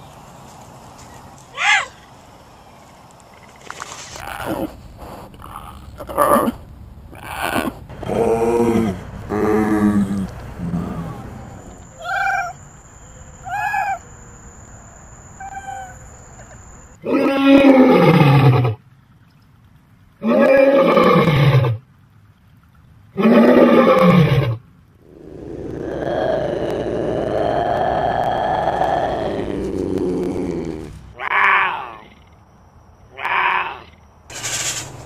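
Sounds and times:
lion roaring: 4.2 - 12.6, 23.2 - 31.9
drawn-out wild cat call: 4.2 - 14.1, 15.4 - 18.8, 23.2 - 32.3, 33.1 - 34.0.

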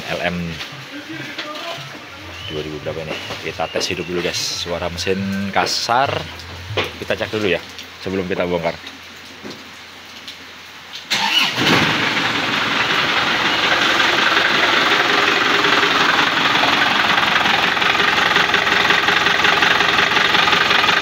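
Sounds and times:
diesel engine cranking and clattering: 5.9 - 7.9, 11.1 - 21.0.

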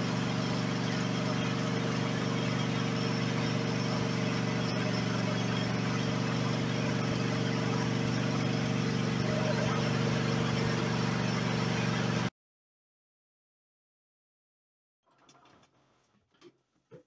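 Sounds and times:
riding mower engine idling: 0.0 - 12.3.

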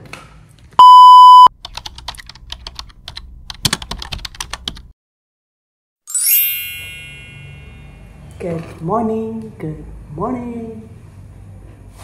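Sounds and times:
loud steady beep: 0.8 - 1.5
rapid keyboard typing: 1.6 - 4.9
bright chime ringing: 6.1 - 8.3.

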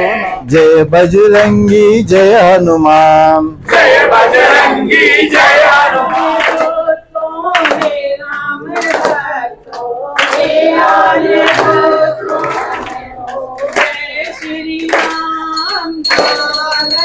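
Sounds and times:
group singing devotional song: 0.0 - 17.0
hand clapping: 6.4 - 6.8, 7.5 - 10.6, 11.4 - 17.0
high ringing tone: 15.0 - 17.0.

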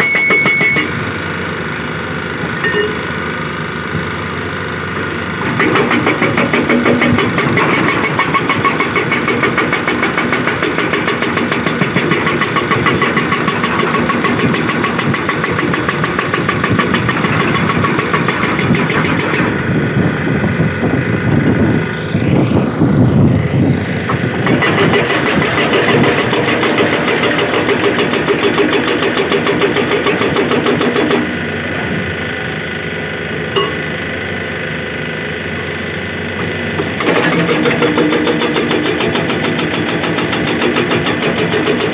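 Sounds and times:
hydraulic breaker hammering rock: 0.0 - 1.2, 5.0 - 20.2, 23.9 - 34.4, 35.7 - 41.9
excavator engine running: 0.0 - 41.9.

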